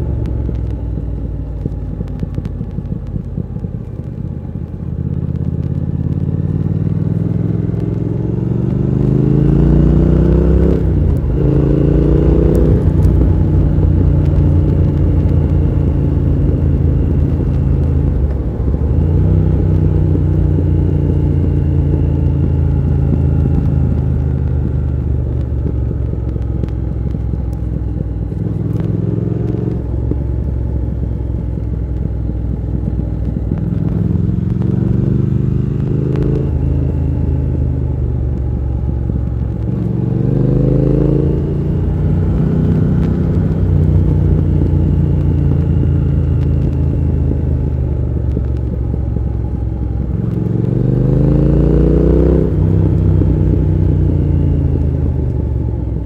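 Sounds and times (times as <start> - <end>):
motorcycle engine accelerating: 0.0 - 56.0.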